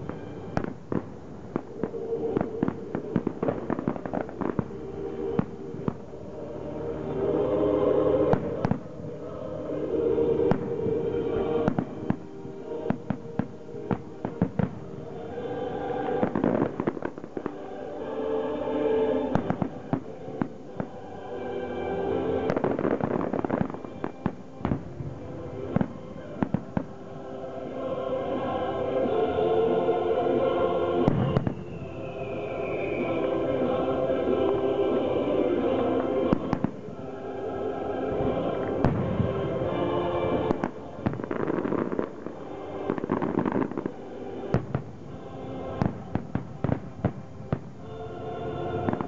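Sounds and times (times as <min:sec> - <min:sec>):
loud fireworks bangs: 0:00.0 - 0:06.2, 0:08.2 - 0:09.3, 0:10.4 - 0:17.9, 0:18.8 - 0:21.0, 0:22.3 - 0:27.1, 0:31.0 - 0:33.1, 0:36.3 - 0:37.2, 0:38.1 - 0:49.0
fireworks crackling: 0:00.0 - 0:49.0
music: 0:00.0 - 0:49.0.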